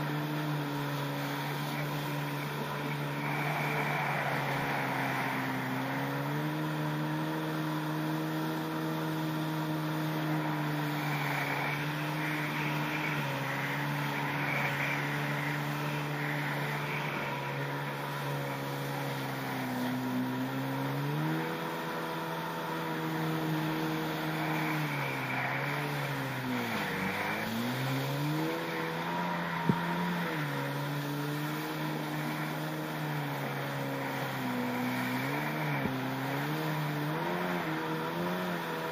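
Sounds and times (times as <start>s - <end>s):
jet ski engine: 0.0s - 38.9s
water spray hissing: 1.1s - 6.6s, 10.0s - 21.6s.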